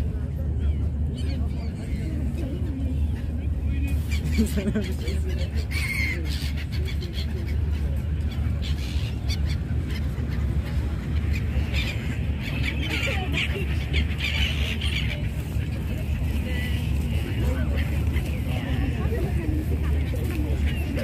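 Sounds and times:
steady low rumble: 0.0 - 21.0
gulls calling: 0.4 - 21.0.

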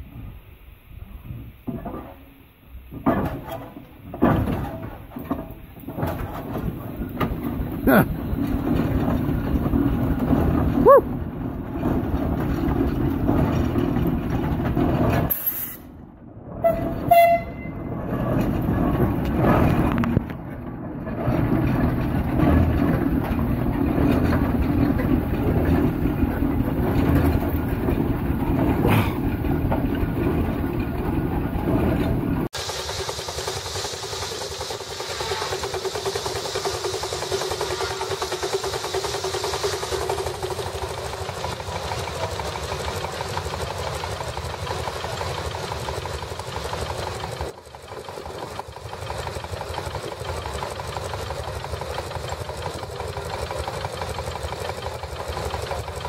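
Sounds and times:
steam traction engine running: 0.0 - 56.0
steam hissing: 32.6 - 56.0.

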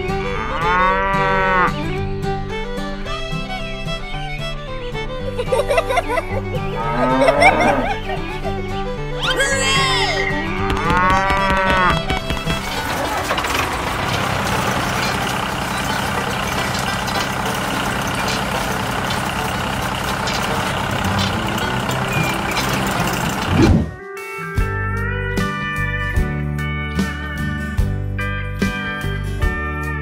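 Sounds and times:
cow mooing: 0.4 - 1.8, 6.7 - 8.1, 9.2 - 12.1
rotary brush sweeper running: 7.4 - 9.4, 11.4 - 23.6.

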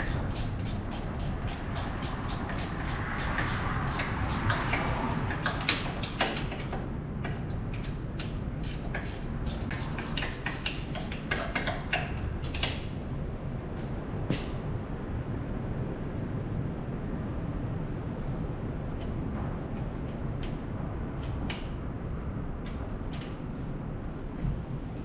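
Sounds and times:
steady low hum: 0.0 - 25.0
metal hand tools clicking: 8.2 - 12.7.

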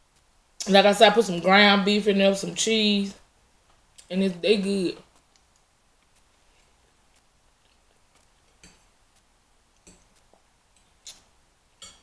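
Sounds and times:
faint ticks and clicks: 0.0 - 0.8, 5.0 - 12.0.

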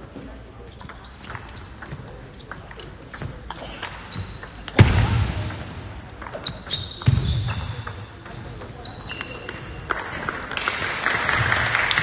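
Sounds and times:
shoes squeaking on floor: 0.6 - 8.1, 8.8 - 9.8.

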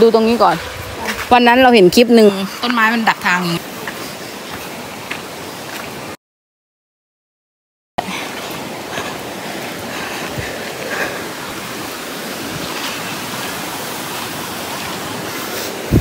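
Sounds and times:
waterfall rushing: 0.0 - 6.2, 8.0 - 16.0.

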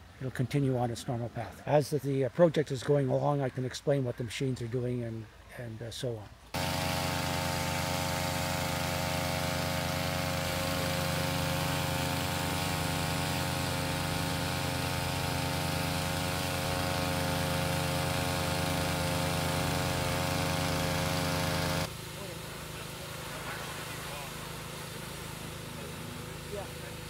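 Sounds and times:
small gasoline engine running: 6.5 - 27.0.

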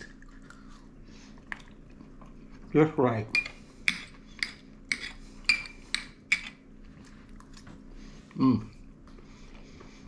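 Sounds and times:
person humming briefly: 8.4 - 8.8.

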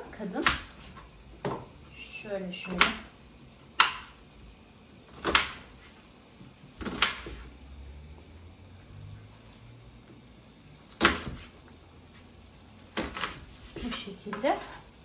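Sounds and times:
knife cutting onion: 10.9 - 11.5, 12.9 - 14.4.

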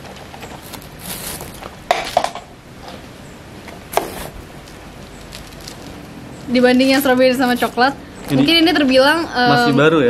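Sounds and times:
small objects clattering: 4.0 - 6.1
rustle: 4.0 - 9.0.

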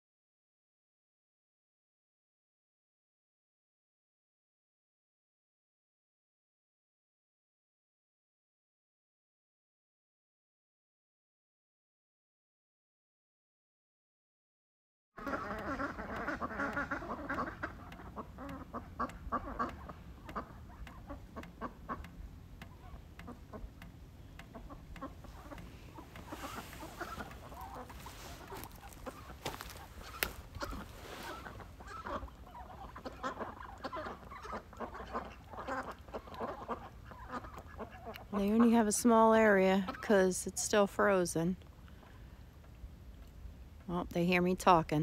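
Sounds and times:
ducks quacking: 15.2 - 23.8, 24.4 - 40.2.

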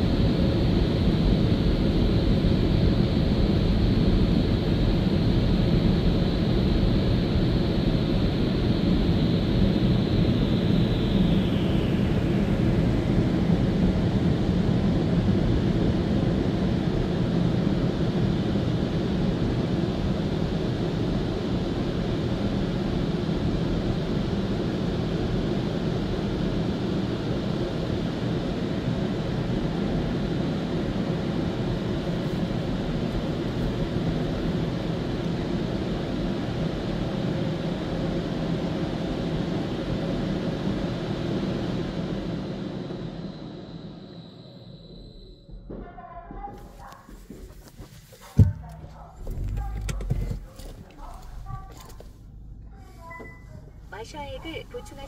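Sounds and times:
car wash rushing: 47.1 - 52.3.

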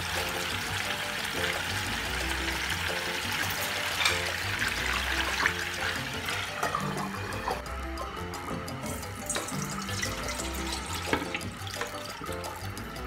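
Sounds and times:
background music: 0.0 - 13.0
liquid pouring and splashing: 0.0 - 13.0.

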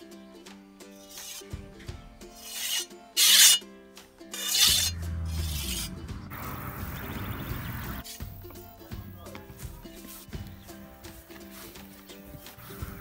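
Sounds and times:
whetstone rasping on scythe blade: 1.0 - 1.5, 2.3 - 3.6, 4.3 - 6.0.

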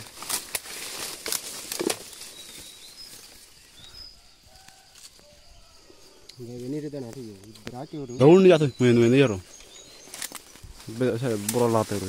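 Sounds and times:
net rustling among leaves: 0.0 - 3.9, 10.0 - 12.0.

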